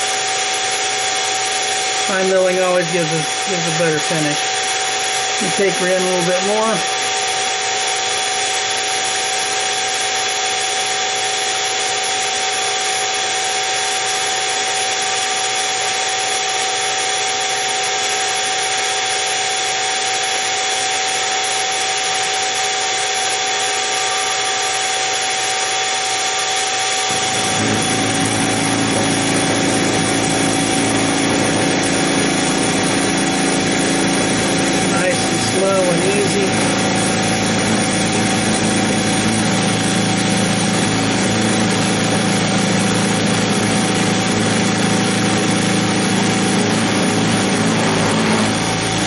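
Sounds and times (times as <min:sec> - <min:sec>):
end mill cutting metal: 0:00.0 - 0:49.0
mill spindle motor whining: 0:00.0 - 0:49.0
low rumble: 0:27.1 - 0:35.0.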